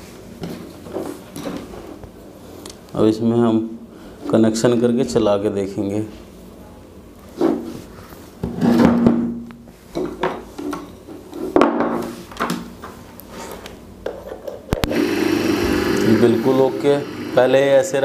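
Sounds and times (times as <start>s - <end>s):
motor humming: 14.8s - 17.7s.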